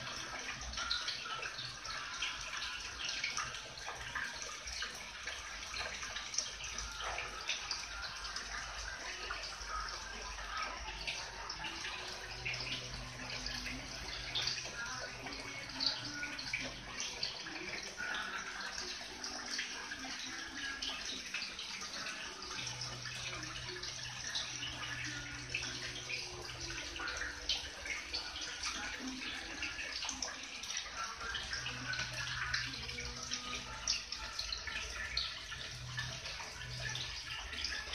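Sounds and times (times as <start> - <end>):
water trickling into pond: 0.0 - 37.9.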